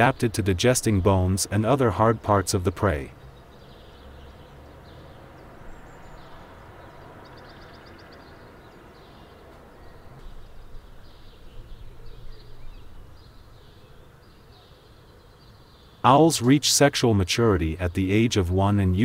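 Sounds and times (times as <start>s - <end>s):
low rumble and hiss: 9.4s - 14.6s.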